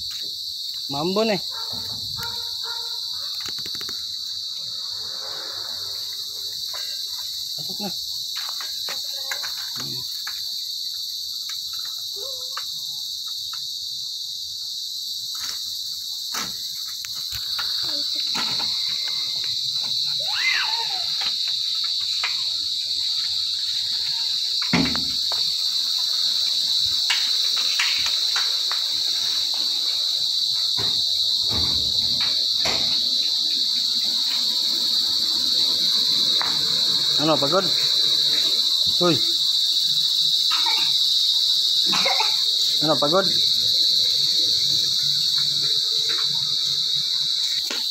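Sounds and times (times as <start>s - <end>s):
crickets trilling: 0.0s - 47.9s.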